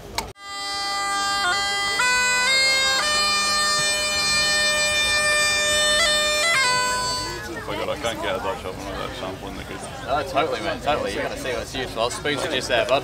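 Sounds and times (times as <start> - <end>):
bagpipes playing slow tune: 0.4 - 8.2.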